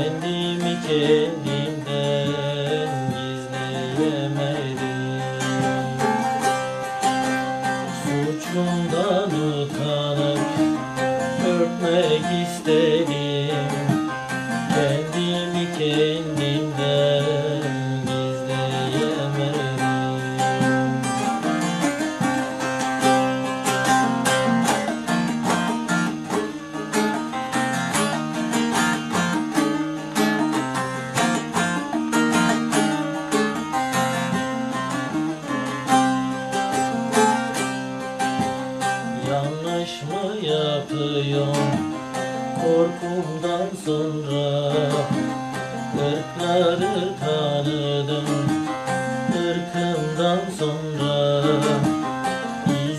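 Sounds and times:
long-necked lute strummed: 0.0s - 52.9s
man singing folk song: 0.0s - 52.9s.

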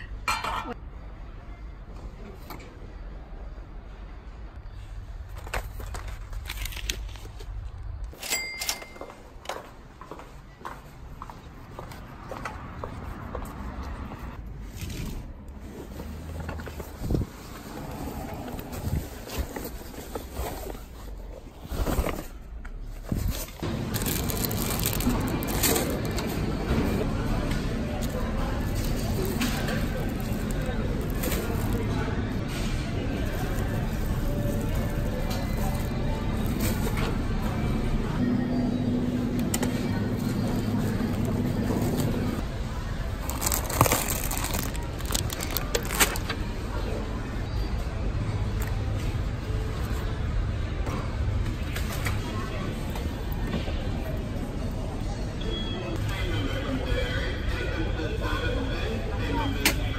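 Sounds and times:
background noise: 0.0s - 59.9s
store background noise: 0.0s - 59.9s
rustling of nylon bag: 23.0s - 27.0s, 27.9s - 37.1s, 43.1s - 46.4s
plastic packet crinkling: 23.6s - 26.3s, 28.0s - 32.0s, 43.2s - 46.4s.

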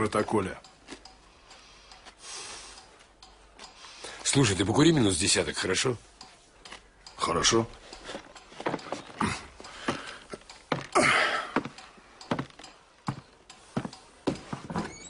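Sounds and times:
footsteps on wooden floor: 8.1s - 15.0s.

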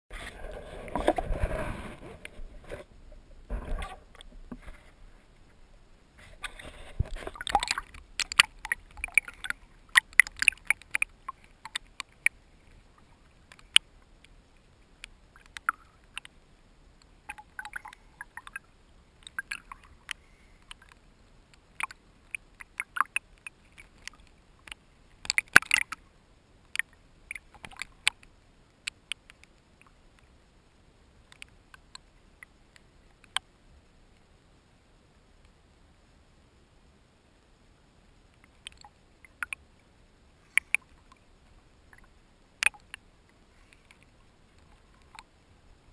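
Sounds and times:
water splashing and lapping: 0.1s - 13.8s, 17.2s - 21.1s, 21.7s - 26.0s, 26.7s - 28.2s.

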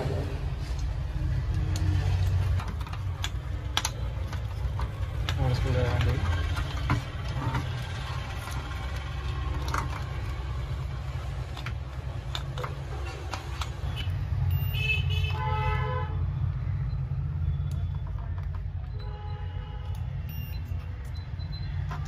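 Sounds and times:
short high beeps: 20.3s - 21.8s.

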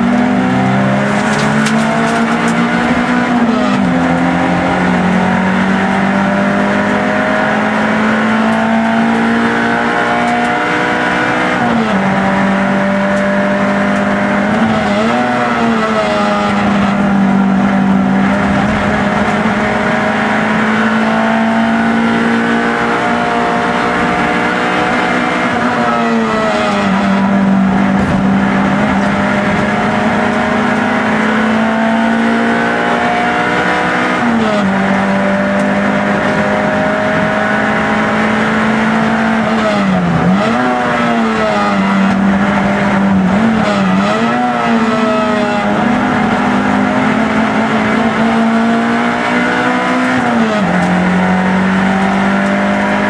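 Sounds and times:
race car engine at high revs: 0.0s - 53.0s.

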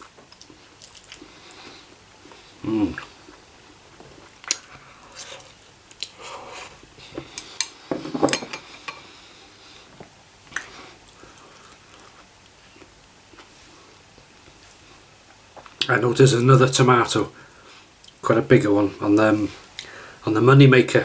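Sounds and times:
mouth sounds of eating: 0.0s - 7.8s.

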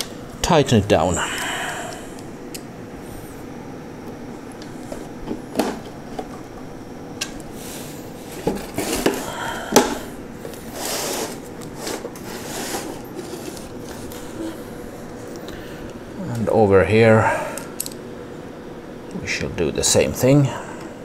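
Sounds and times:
cardboard scraping and rustling: 8.2s - 9.3s, 10.5s - 14.6s.

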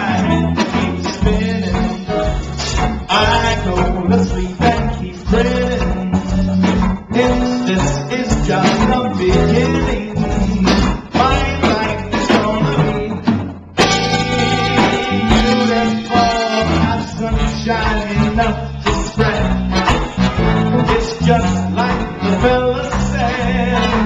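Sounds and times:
bass and drums: 0.0s - 24.0s
electric guitar: 0.0s - 24.0s
horn section: 13.8s - 24.0s.

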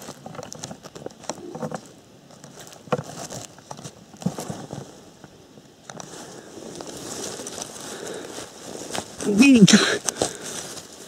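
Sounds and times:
dry leaves and twigs rustling: 0.0s - 11.0s.

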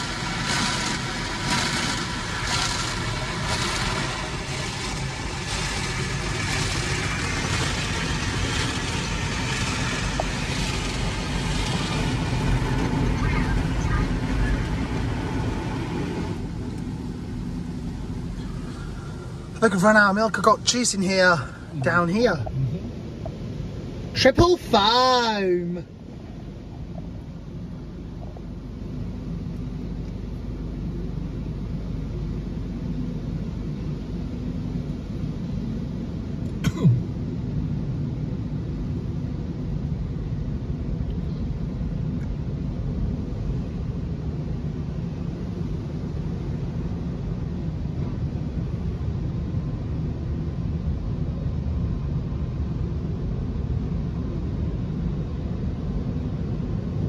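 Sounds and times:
water on car body: 0.0s - 18.8s
car wash machinery rumble: 0.0s - 57.0s.

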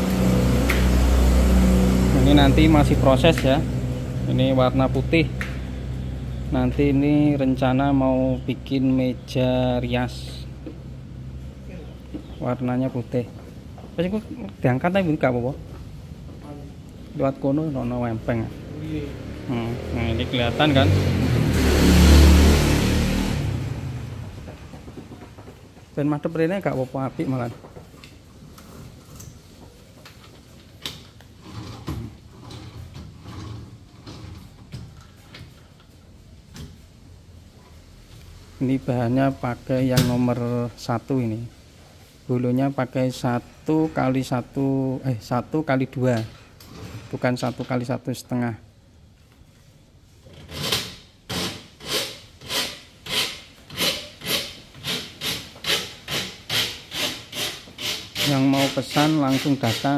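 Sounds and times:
drawer sliding open and shut: 46.2s - 47.4s
rhythmic rasping scraping: 50.4s - 59.9s.

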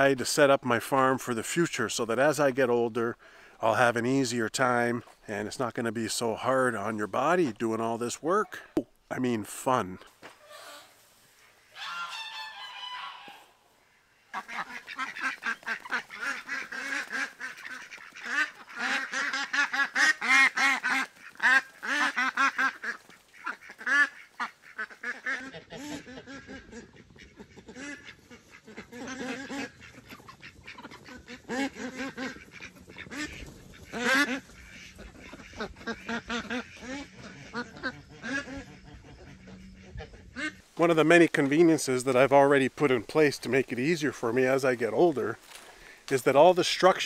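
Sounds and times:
ducks quacking: 9.7s - 47.0s.

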